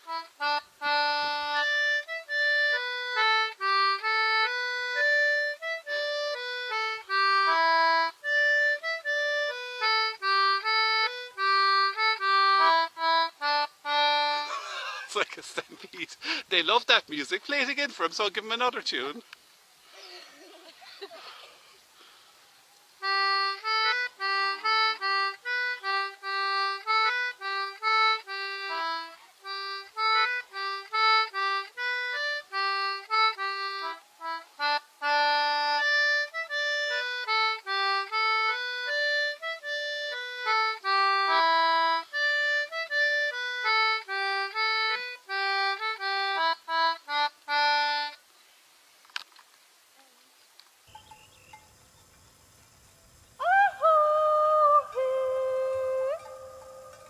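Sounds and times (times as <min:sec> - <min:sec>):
concertina playing lively tune: 0:00.0 - 0:18.6, 0:23.0 - 0:48.2, 0:53.4 - 0:57.0.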